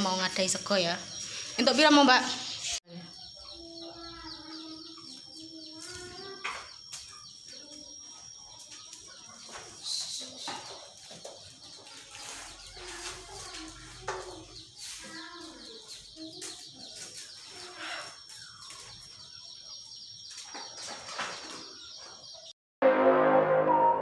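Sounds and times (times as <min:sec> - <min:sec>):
steady high tone: 0:00.0 - 0:20.4
birds chirping: 0:00.0 - 0:22.5
chickens clucking: 0:02.2 - 0:19.8
background music: 0:22.8 - 0:24.0.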